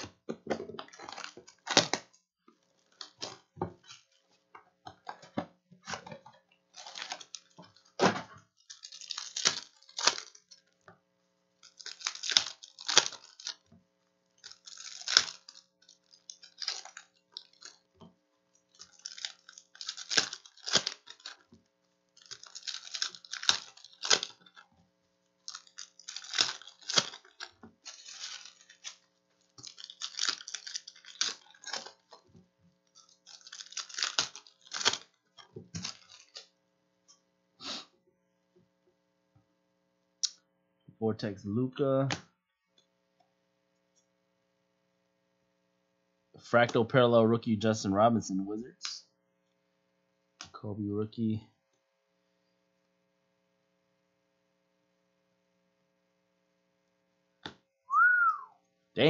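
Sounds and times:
wrappers crinkling and tearing: 0.0 - 4.4, 5.8 - 10.8, 11.5 - 36.6.

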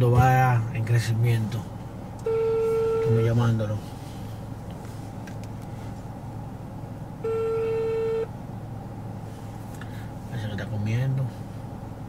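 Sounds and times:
steady low hum: 0.0 - 12.0
phone ringback tone: 2.3 - 3.3, 7.2 - 8.3.

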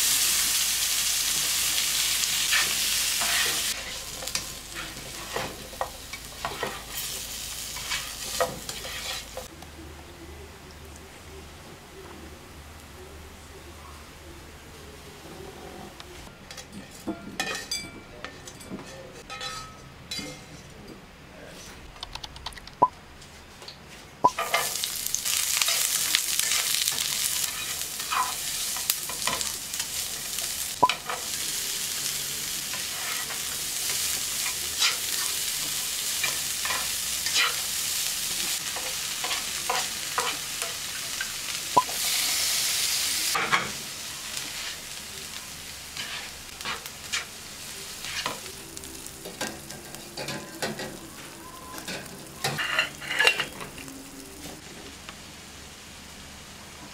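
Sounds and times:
vegetables sizzling in oil: 0.0 - 9.5, 24.2 - 56.9
spatula clicking and scraping pan: 2.4 - 9.5, 25.5 - 31.4, 32.7 - 38.0, 38.6 - 42.1, 46.0 - 47.3, 51.8 - 53.7.

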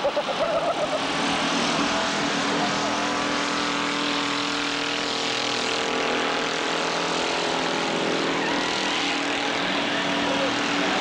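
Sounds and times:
car engines droning: 0.0 - 11.0.

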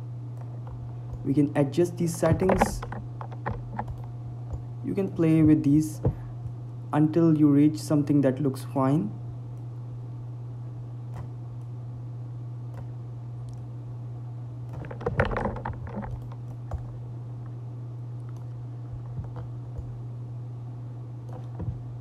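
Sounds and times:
steady low hum: 0.0 - 22.0
keyboard and mouse clicks: 2.1 - 4.6, 14.7 - 17.0, 18.2 - 20.0.

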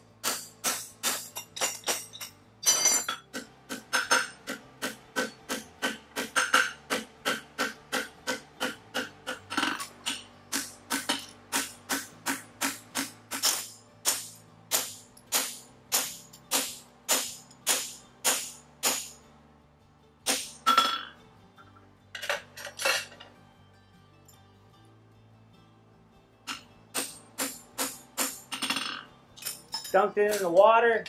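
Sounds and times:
hammer striking metal punch: 0.2 - 19.2, 20.2 - 21.1, 26.5 - 30.6.

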